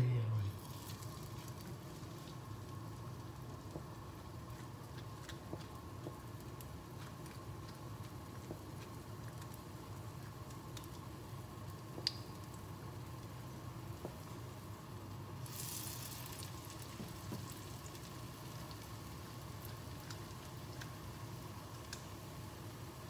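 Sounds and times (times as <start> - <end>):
steady low hum: 0.0 - 15.4
wet batter squishing: 0.6 - 12.7.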